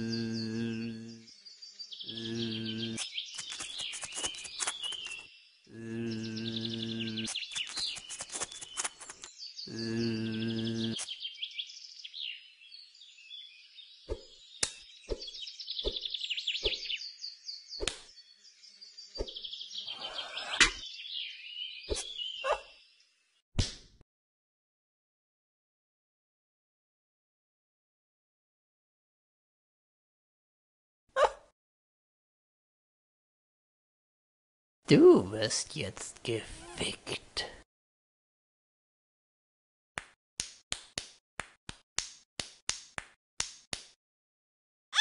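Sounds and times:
cartoon bee buzzing: 0.0s - 1.2s, 2.1s - 4.3s, 9.7s - 11.0s
birdsong chirps: 0.0s - 23.4s.

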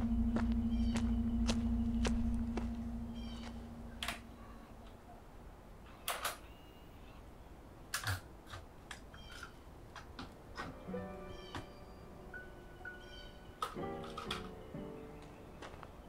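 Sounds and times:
plastic clicks and snaps: 7.9s - 10.7s.

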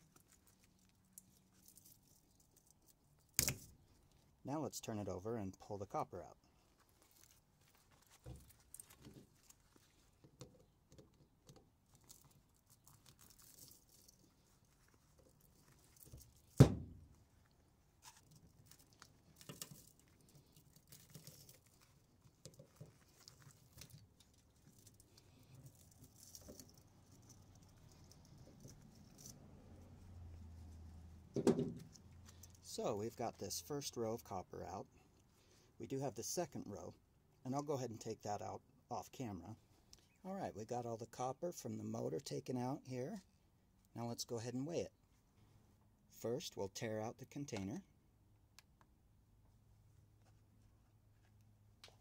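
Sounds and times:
wire and metal clicks and scrapes: 17.4s - 30.1s.

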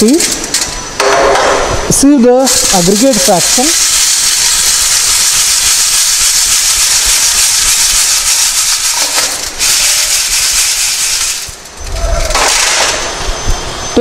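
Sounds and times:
gravel rattling in metal sieves: 2.4s - 13.0s.

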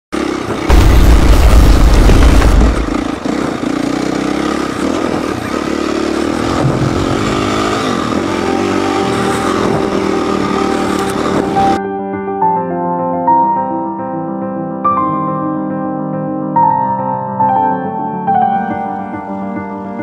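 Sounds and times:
dirt bike engine running: 0.2s - 11.8s
loud deep rumble: 0.6s - 5.3s, 6.1s - 11.8s.

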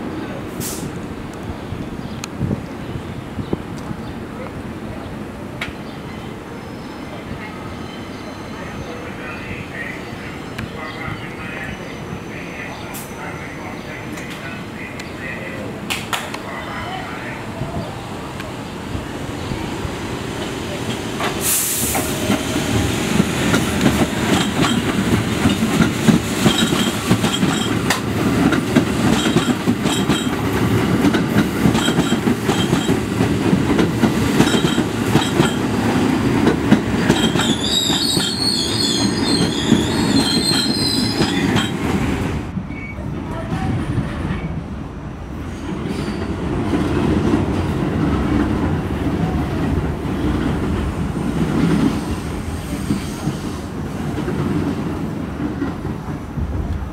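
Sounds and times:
subway train wheels rumbling: 0.0s - 56.9s
high wavering wheel squeal: 37.3s - 41.7s.

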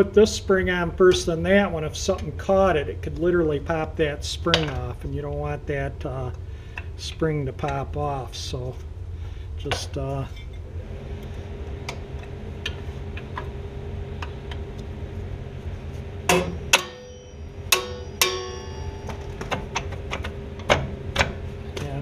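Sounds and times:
sharp metallic clanks: 16.3s - 20.0s
metal spring clinking: 16.3s - 20.2s.

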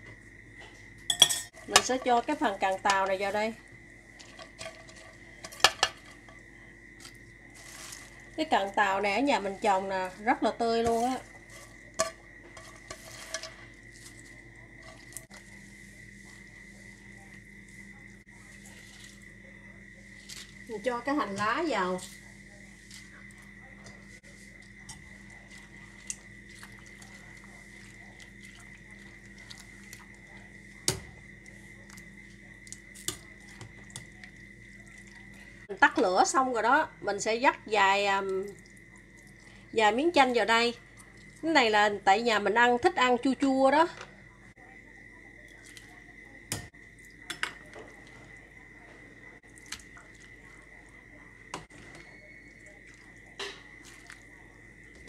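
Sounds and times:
steady high hum: 0.0s - 55.0s
ladle clinking in metal pot: 1.1s - 2.0s
soup splashing: 1.1s - 35.7s, 38.1s - 41.5s, 49.4s - 55.0s.

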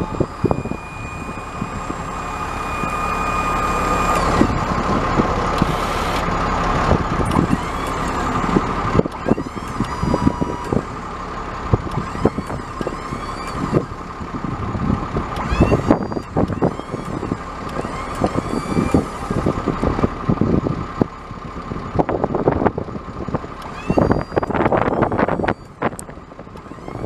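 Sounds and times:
short squeaks: 0.0s - 6.5s, 7.2s - 11.2s, 11.8s - 14.2s, 15.3s - 19.9s, 23.5s - 27.0s
machinery high whine: 0.0s - 20.8s, 23.4s - 27.0s.

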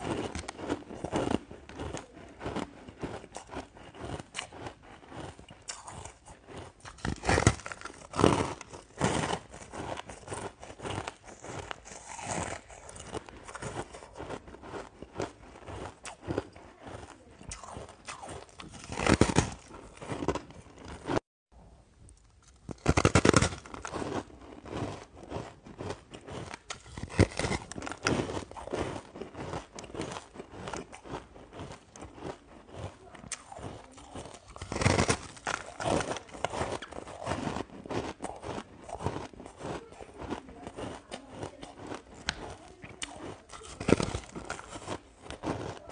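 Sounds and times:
person biting and chewing ice: 0.0s - 21.2s, 22.1s - 45.9s.

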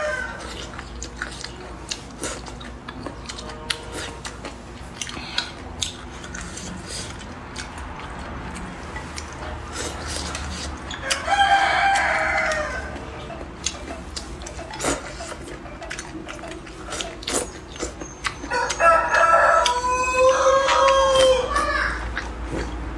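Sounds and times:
rooster crowing: 0.0s - 0.5s, 11.0s - 13.2s, 18.4s - 22.2s
eating clicks and smacks: 0.4s - 22.9s.

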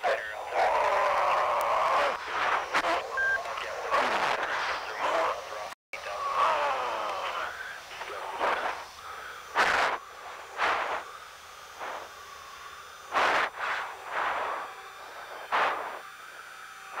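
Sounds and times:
faint cockpit hum: 0.0s - 17.0s
hissing breaths in oxygen mask: 6.2s - 17.0s.

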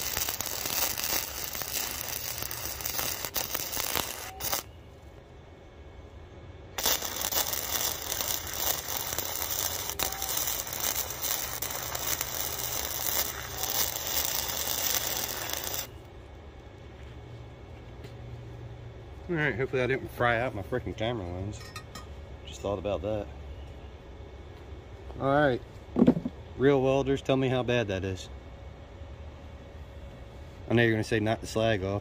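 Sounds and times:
welding arc crackling: 0.0s - 4.7s, 6.8s - 16.1s.

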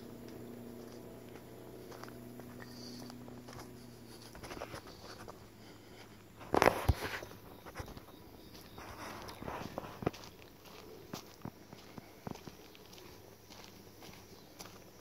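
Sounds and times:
faint low hum: 0.0s - 15.0s
footsteps on leaf litter: 0.3s - 15.0s.

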